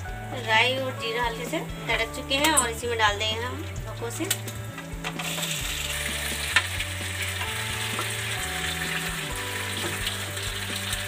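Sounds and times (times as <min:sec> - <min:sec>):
dumplings sizzling in hot fat: 0:03.4 - 0:11.0.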